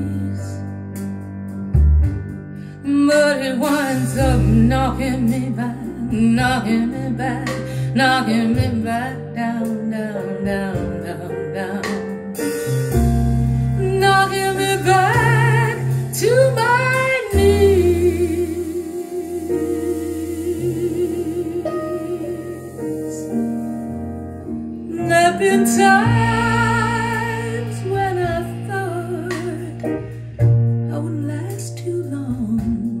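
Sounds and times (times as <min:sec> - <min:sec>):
woman singing: 0:00.0 - 0:00.7, 0:02.8 - 0:12.3, 0:13.8 - 0:23.4, 0:24.9 - 0:30.1, 0:30.9 - 0:33.0
soul song over loudspeakers: 0:00.0 - 0:01.2.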